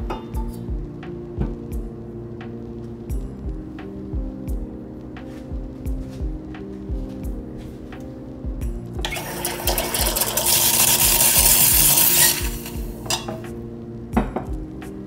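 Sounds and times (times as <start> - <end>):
loud hiss of steam: 10.4 - 12.9.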